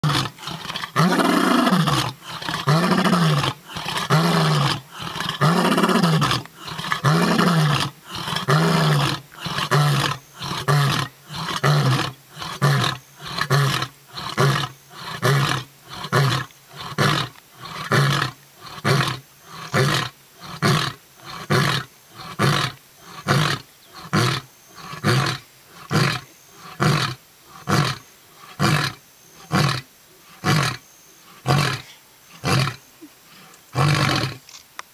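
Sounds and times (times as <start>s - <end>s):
lion roaring: 0.0s - 29.8s.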